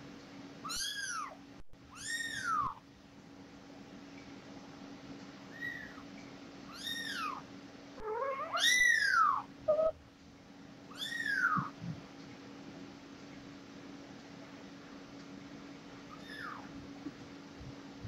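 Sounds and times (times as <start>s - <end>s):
kitten mewing: 8.0s - 10.0s, 10.9s - 11.9s, 16.1s - 16.7s.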